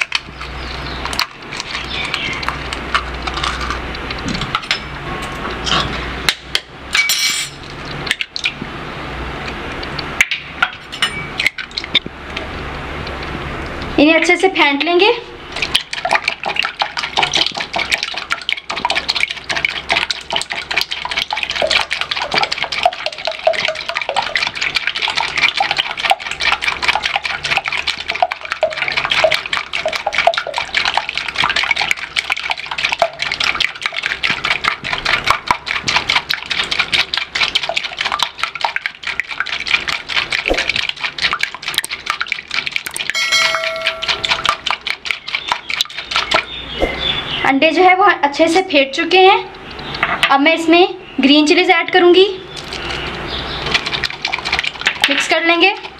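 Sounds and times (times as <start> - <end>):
whisk clattering against glass bowl: 15.6 - 46.5
short ringing chime: 43.1 - 44.3.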